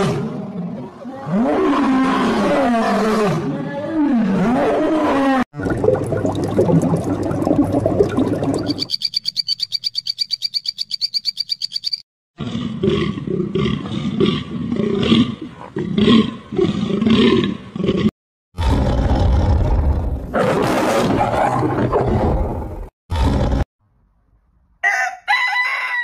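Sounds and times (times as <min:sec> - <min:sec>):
fast high pulsing call: 0:08.6 - 0:12.0.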